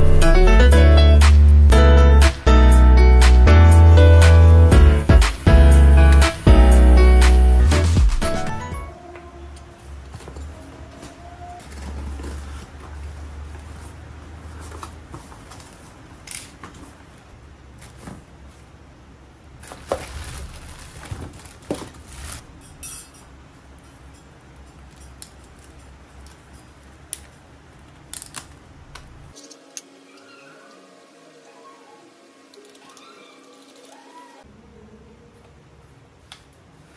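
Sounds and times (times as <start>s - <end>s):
cardboard and plastic rustling: 10.0s - 18.8s, 19.6s - 22.5s.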